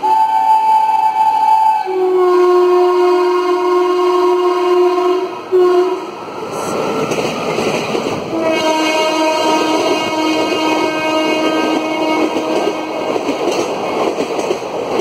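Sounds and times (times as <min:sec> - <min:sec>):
locomotive horn: 0:00.0 - 0:06.1, 0:08.3 - 0:13.2
train passing rumble: 0:00.0 - 0:15.0.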